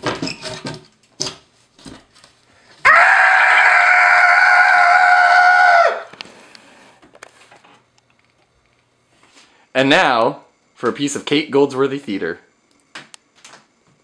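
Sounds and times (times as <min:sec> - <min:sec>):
person screaming: 0:02.8 - 0:06.1.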